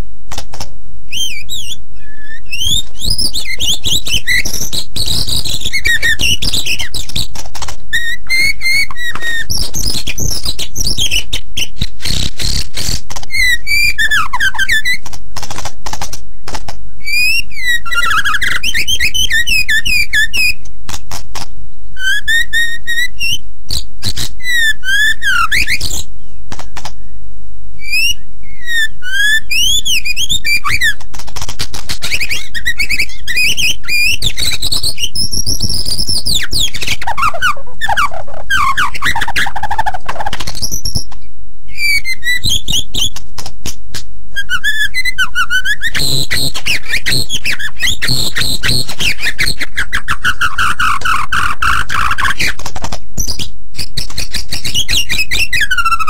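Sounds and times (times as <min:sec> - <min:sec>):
bird singing whistled trills: 0:01.1 - 0:07.3, 0:07.9 - 0:15.0, 0:17.0 - 0:20.6, 0:21.8 - 0:31.0, 0:31.9 - 0:41.1, 0:41.7 - 0:43.2, 0:44.4 - 0:52.6, 0:53.2 - 0:56.0.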